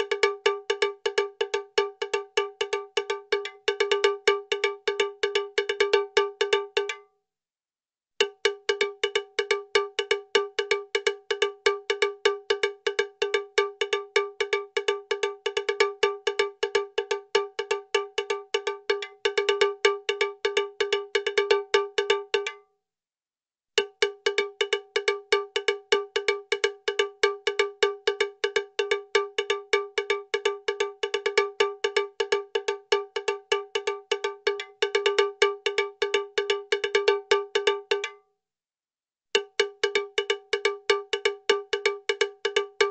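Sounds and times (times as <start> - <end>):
rapid metallic cowbell-like strikes: 0.0 - 7.0, 23.8 - 38.2, 39.4 - 42.9.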